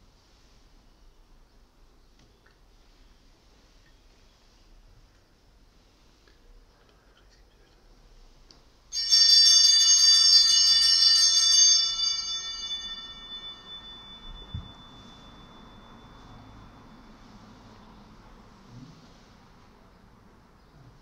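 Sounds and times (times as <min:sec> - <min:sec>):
bell shaken and ringing: 0:08.9 - 0:17.8.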